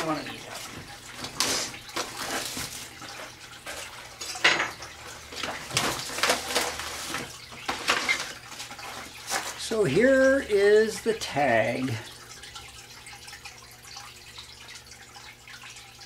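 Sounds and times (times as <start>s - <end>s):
plastic wrap crinkling: 1.4s - 3.1s, 5.3s - 9.7s.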